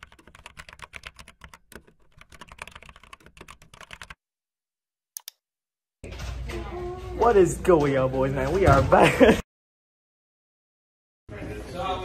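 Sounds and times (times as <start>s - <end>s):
typing on computer keyboard: 0.0s - 4.2s.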